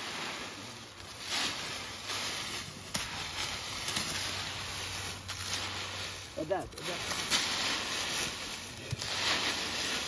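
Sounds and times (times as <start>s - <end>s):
dry leaves rustling and crackling: 0.0s - 10.0s
sharp crack: 1.2s - 6.1s.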